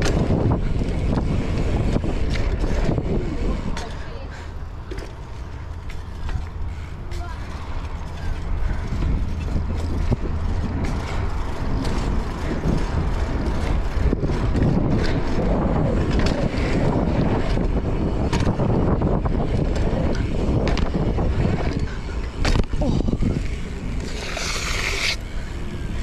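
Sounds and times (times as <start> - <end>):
bike clicks and knocks: 0.0 - 4.2, 4.8 - 26.0
bike tyres rolling on concrete: 0.0 - 26.0
wind rumbling on microphone: 0.0 - 26.0.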